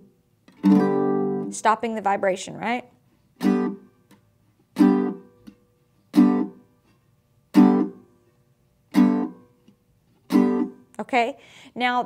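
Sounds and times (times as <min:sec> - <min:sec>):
muted mandolin chord strums: 0:00.5 - 0:01.6, 0:03.4 - 0:06.7, 0:07.5 - 0:08.2, 0:08.9 - 0:10.8.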